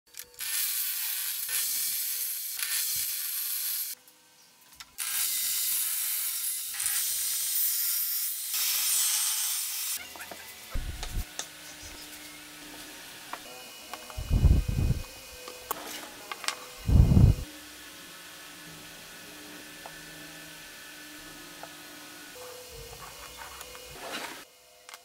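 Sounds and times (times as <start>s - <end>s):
table saw cutting wood: 5.0s - 10.0s, 10.7s - 24.5s.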